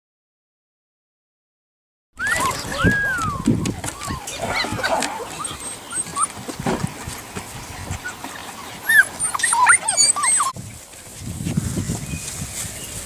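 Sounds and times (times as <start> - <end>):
puppies whimpering and yipping: 2.2 - 6.6, 7.4 - 10.6
soft low rustling: 3.7 - 13.0.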